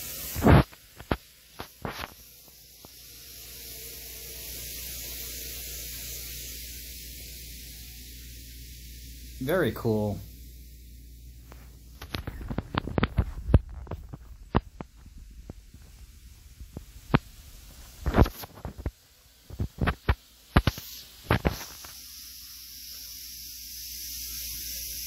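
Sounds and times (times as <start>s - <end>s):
steady hiss: 0.0s - 25.0s.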